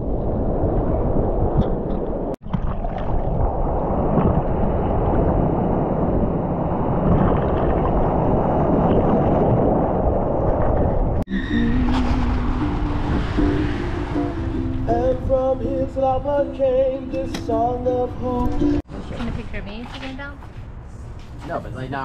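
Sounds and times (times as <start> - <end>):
ocean surf sloshing: 3.2 - 19.8.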